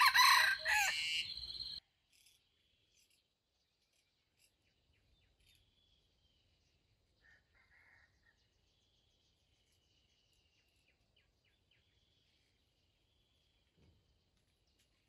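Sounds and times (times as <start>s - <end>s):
insect trill: 0.0s - 1.8s.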